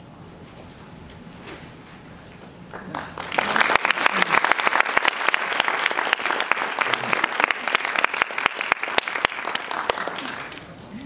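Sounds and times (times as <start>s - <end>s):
audience applauding: 2.7s - 10.7s.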